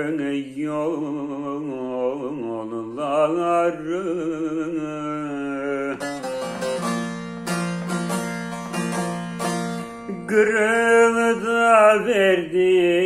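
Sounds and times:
plucked long-necked lute: 0:05.7 - 0:11.1.

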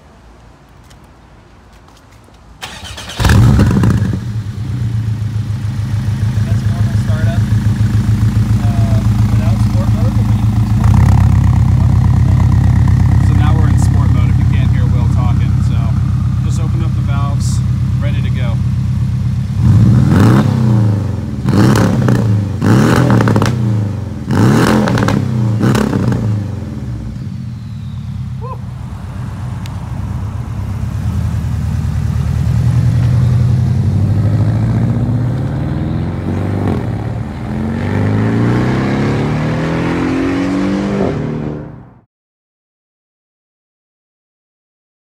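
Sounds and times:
car engine revving: 0:02.6 - 0:42.0.

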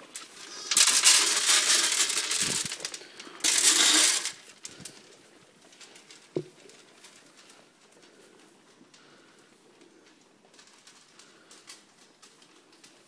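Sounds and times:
dry feed pellets pouring: 0:00.0 - 0:05.0.

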